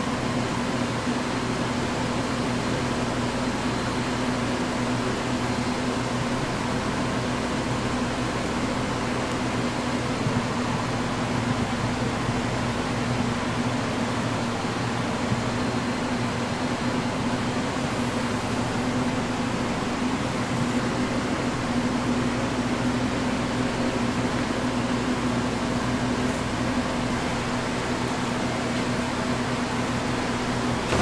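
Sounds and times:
machine motor humming: 0:27.3 - 0:31.0.

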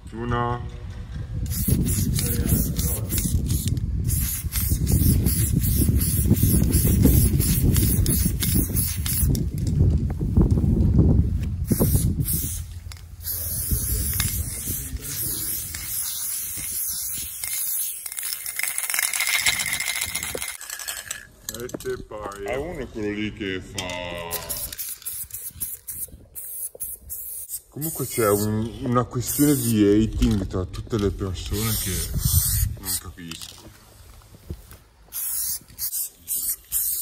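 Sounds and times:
spray paint can hissing: 0:01.4 - 0:09.7, 0:11.4 - 0:21.0, 0:24.3 - 0:28.6, 0:29.2 - 0:30.0, 0:31.5 - 0:33.4, 0:35.1 - 0:37.0.

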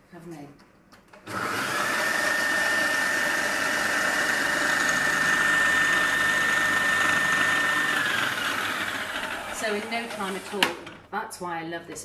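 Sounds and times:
food processor motor running: 0:01.3 - 0:11.0.

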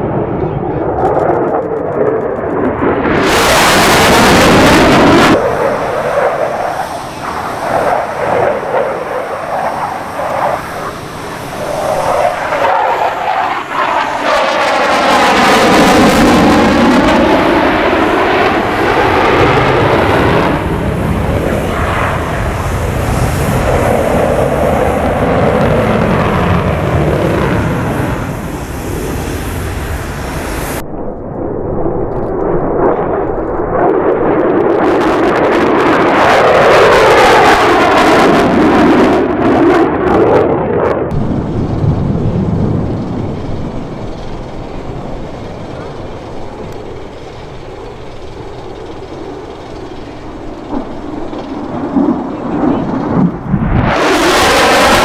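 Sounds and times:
fighter jet flyby roar: 0:00.0 - 0:55.0.

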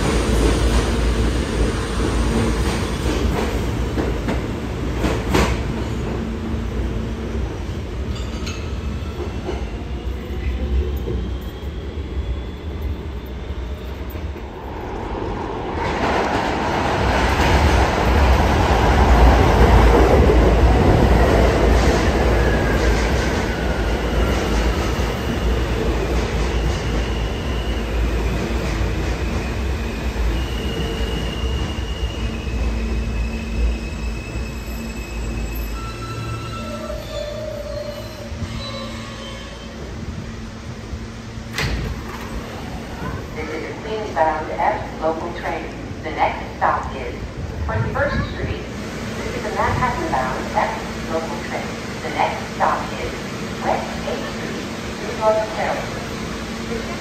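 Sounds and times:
subway train rumble: 0:00.0 - 0:57.0
train brakes squealing: 0:08.1 - 0:14.3, 0:23.6 - 0:28.2, 0:29.2 - 0:39.8.

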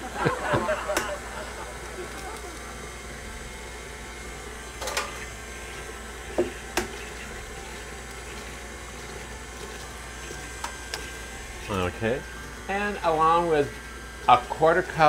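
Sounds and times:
stand mixer running: 0:00.0 - 0:15.0.

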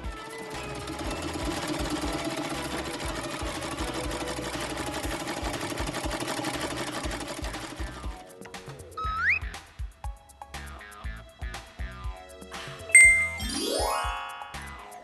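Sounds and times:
toy sewing machine running: 0:00.0 - 0:08.2.

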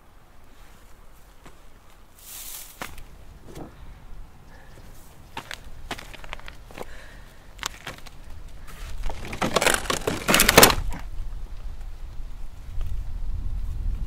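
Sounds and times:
dry bone and hide cracking: 0:07.6 - 0:11.1.

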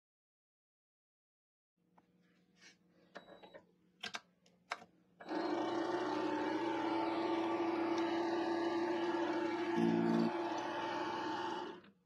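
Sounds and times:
lathe humming and whining: 0:05.2 - 0:11.8.

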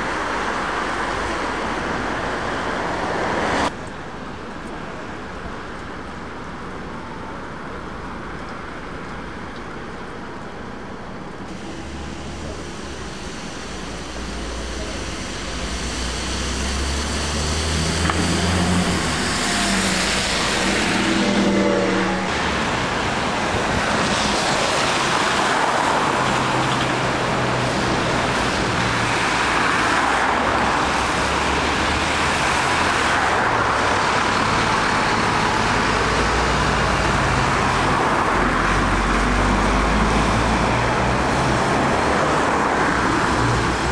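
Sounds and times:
bus engines revving: 0:00.0 - 0:03.8, 0:10.6 - 0:43.9
city street traffic: 0:00.0 - 0:43.9
bus passing close by: 0:11.5 - 0:43.9.

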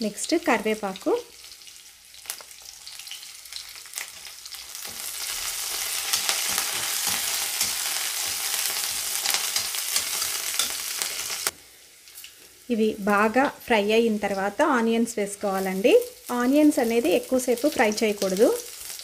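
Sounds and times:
spices sizzling in hot oil: 0:00.0 - 0:19.0
metal spatula scraping pan: 0:04.8 - 0:11.4.

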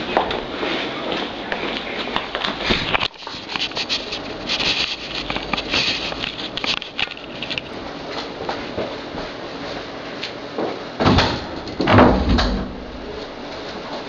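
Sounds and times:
cloth rustling on microphone: 0:02.5 - 0:07.8
camera handling clicks and scrapes: 0:02.8 - 0:07.8.

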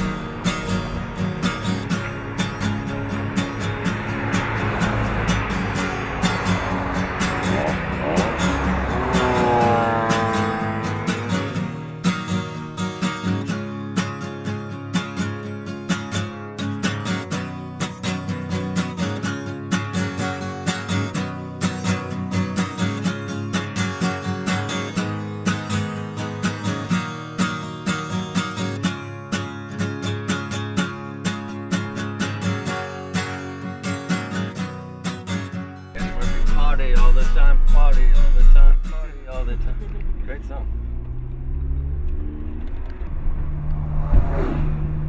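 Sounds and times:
strummed acoustic guitar: 0:00.0 - 0:40.5
loud low rumble: 0:36.0 - 0:45.0.

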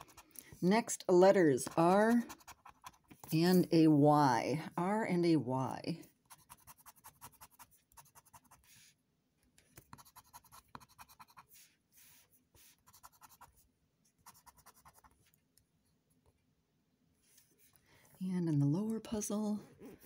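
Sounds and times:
scraper scratching lottery ticket: 0:00.0 - 0:00.4, 0:01.6 - 0:03.7, 0:06.3 - 0:08.8, 0:09.9 - 0:13.5.

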